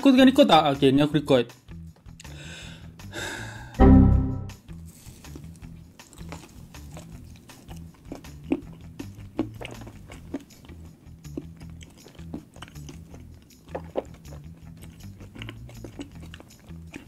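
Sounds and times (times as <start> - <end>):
faint background music: 0.0 - 17.0
chewing with wet mouth clicks: 5.2 - 17.0.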